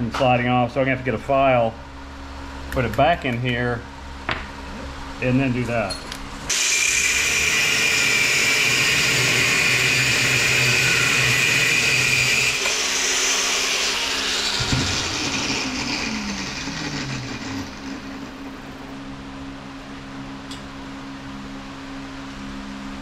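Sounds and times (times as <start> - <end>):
bench grinder grinding steel: 6.5 - 18.9.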